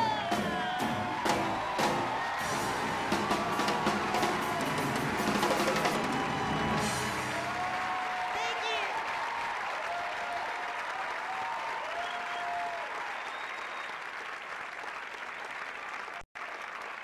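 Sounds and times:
audience applauding: 0.0 - 17.0
people cheering: 0.0 - 17.0.

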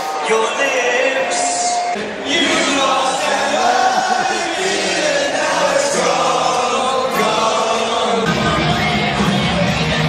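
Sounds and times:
rock music over loudspeakers: 6.6 - 10.0.

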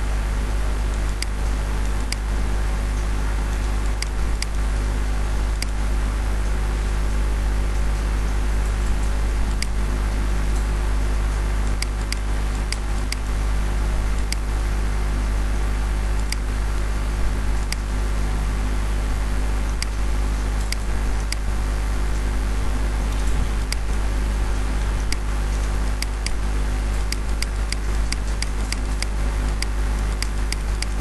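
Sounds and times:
low drone with hum and hiss: 0.0 - 31.0
computer mouse clicks: 11.8 - 13.3, 17.6 - 17.9, 23.3 - 23.9, 25.0 - 26.4, 27.0 - 31.0.

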